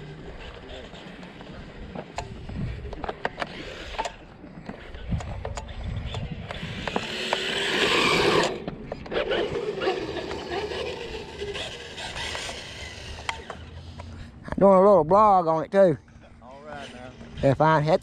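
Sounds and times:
toy car motor whirring: 0:00.1 - 0:14.2.

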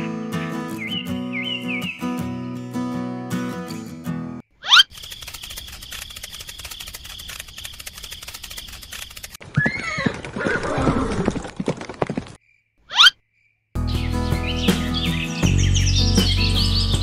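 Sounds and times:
horse hooves clip-clopping: 0:05.6 - 0:12.4
horse whinnying: 0:09.4 - 0:11.4.

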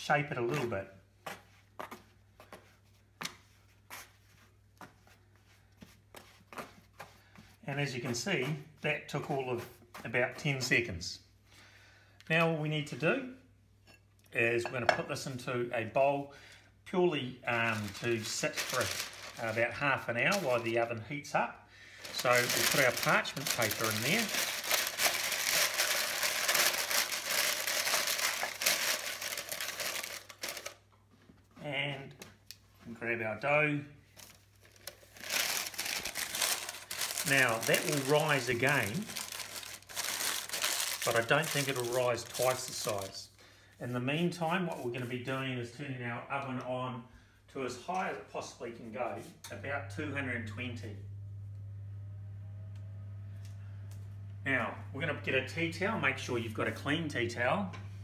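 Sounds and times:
parchment paper crinkling: 0:17.5 - 0:21.0, 0:21.9 - 0:30.9, 0:34.1 - 0:43.2
low steady hum: 0:48.6 - 0:58.0.

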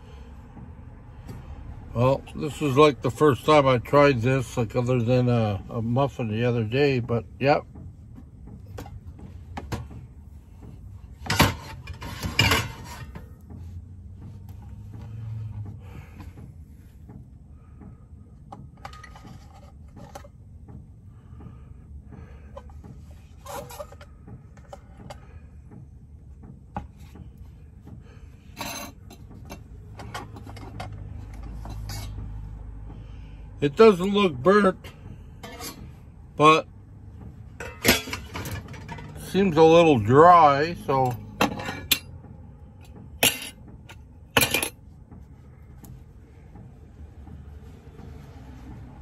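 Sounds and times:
metal bowls clinking: 0:37.6 - 0:39.2.

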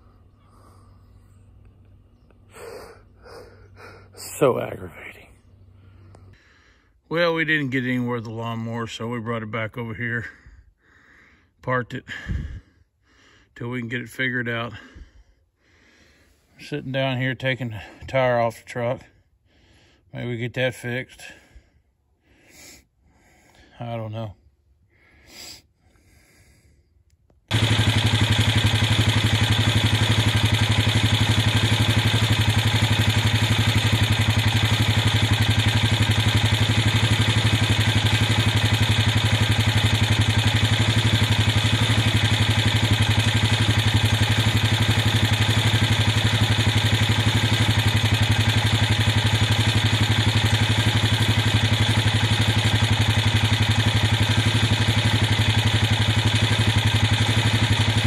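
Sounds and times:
vehicle engine idling: 0:00.0 - 0:06.6, 0:27.5 - 0:58.0.

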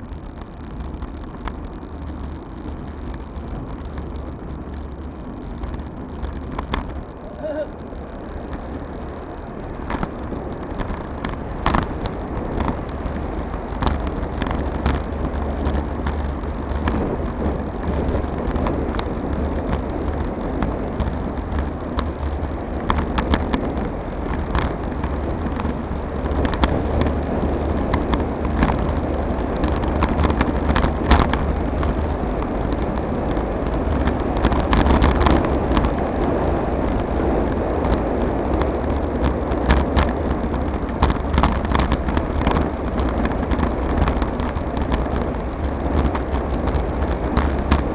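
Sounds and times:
tyre and road rumble: 0:00.0 - 0:47.9
wind on camera microphone: 0:00.0 - 0:47.9
sharp clicks and knocks: 0:02.6 - 0:07.1, 0:09.8 - 0:13.0, 0:13.6 - 0:17.4, 0:18.1 - 0:27.2, 0:29.6 - 0:36.0, 0:37.8 - 0:47.9.

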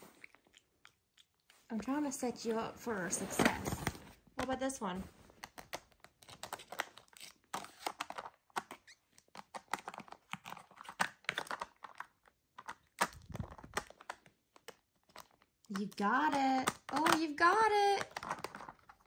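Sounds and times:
plastic tiles clicking and clacking: 0:07.6 - 0:19.0.

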